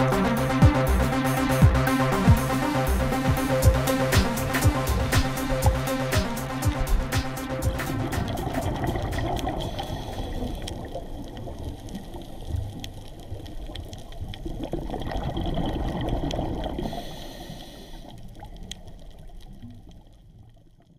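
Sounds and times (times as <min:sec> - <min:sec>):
low rumble: 0:00.0 - 0:13.5
underwater bubbling and gurgling: 0:00.0 - 0:20.9.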